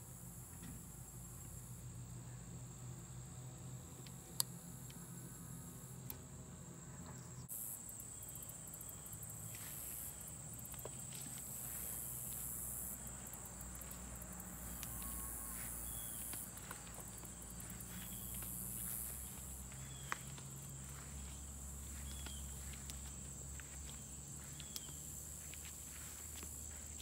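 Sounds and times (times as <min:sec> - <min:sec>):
insects chirring: 0:00.1 - 0:27.0
faint ticks and steps: 0:08.9 - 0:27.0.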